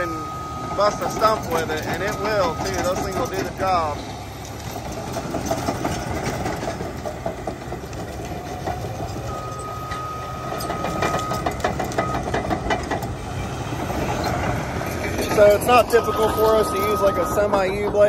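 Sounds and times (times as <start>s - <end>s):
diesel engine under load: 0.0s - 18.0s
steel tracks clanking and squeaking: 0.0s - 18.0s
metallic clanks: 0.8s - 13.2s.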